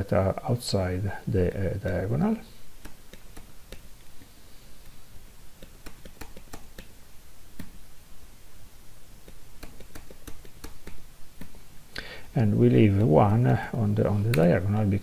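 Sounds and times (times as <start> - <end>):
computer mouse clicks: 2.8 - 3.8, 5.6 - 7.0, 9.2 - 11.6.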